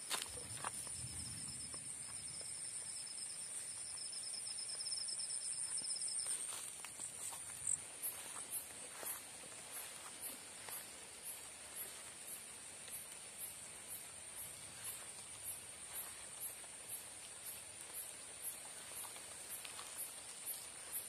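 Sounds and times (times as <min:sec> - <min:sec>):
footsteps rustling through wet grass: 0:00.0 - 0:21.0
insects high-pitched trill: 0:00.0 - 0:21.0
insect pulsing trill: 0:00.3 - 0:06.3.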